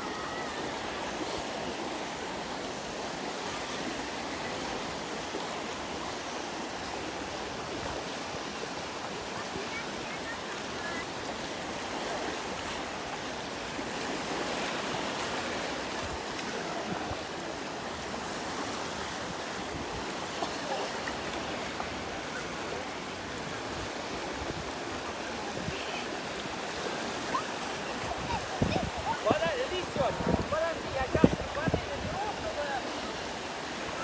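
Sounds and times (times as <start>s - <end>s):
small waves on sandy shore: 0.0s - 34.0s
faint voices: 15.2s - 34.0s.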